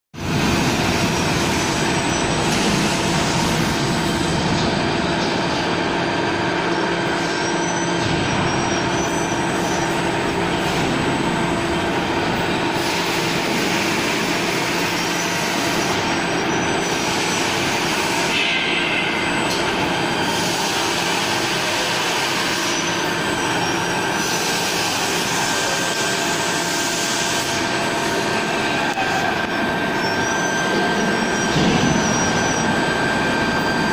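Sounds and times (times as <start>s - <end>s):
factory machinery hum: 0.2s - 33.9s.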